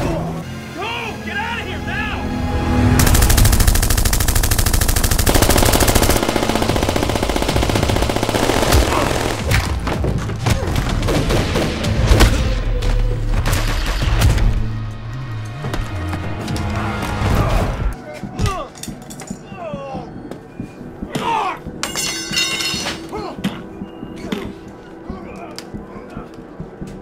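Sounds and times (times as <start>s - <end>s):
automatic gunfire: 3.0s - 9.5s.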